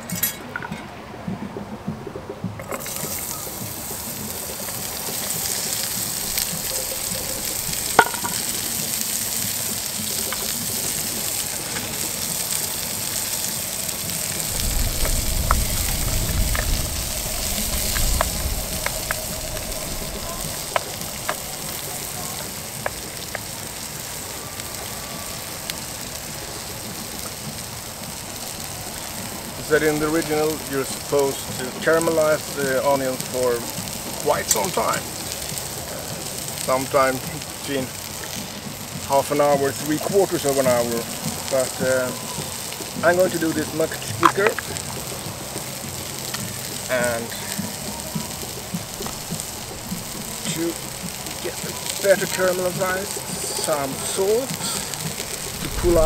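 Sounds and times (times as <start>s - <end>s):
onions sizzling in frying pan: 0.0s - 0.8s, 2.5s - 56.0s
utensil clicking on pan: 7.9s - 11.8s
low rumble: 12.0s - 24.8s, 54.8s - 56.0s.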